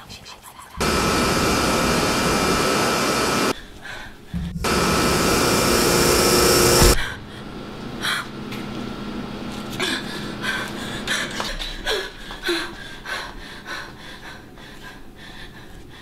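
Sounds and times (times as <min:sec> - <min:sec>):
faint steady tones: 0:00.8 - 0:03.5, 0:04.4 - 0:11.6
loud rushing noise: 0:00.8 - 0:03.5, 0:04.4 - 0:11.4.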